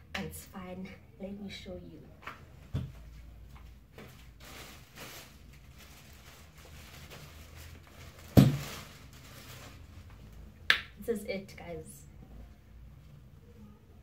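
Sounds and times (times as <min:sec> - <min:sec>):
plastic bag rustling and crinkling: 0:03.9 - 0:10.5.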